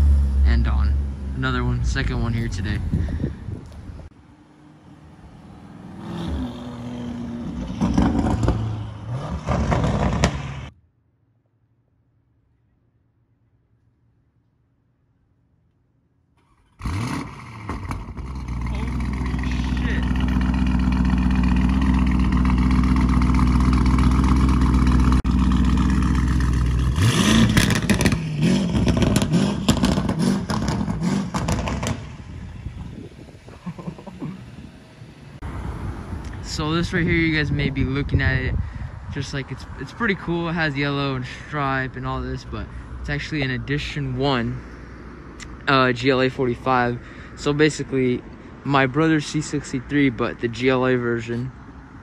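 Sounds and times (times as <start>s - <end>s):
car engine idling and revving: 0.0s - 10.7s, 16.4s - 36.6s
exhaust cracks: 7.4s - 10.8s, 16.4s - 33.0s.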